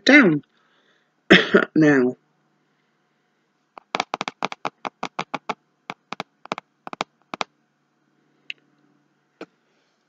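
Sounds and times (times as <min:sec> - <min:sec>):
fingers tapping on a mat: 0:03.8 - 0:07.5.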